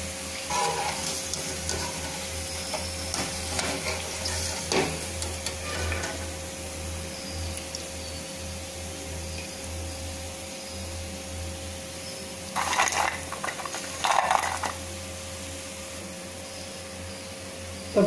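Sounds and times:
fried snacks rattling onto plate: 0:12.6 - 0:14.9.

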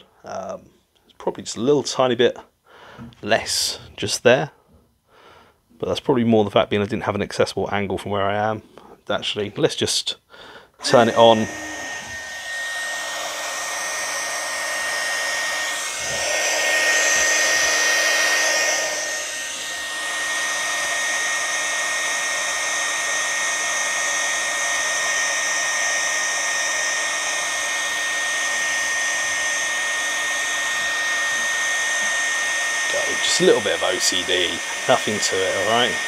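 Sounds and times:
high fan whine: 0:10.8 - 0:22.5
heat gun air rushing: 0:10.8 - 0:36.0.

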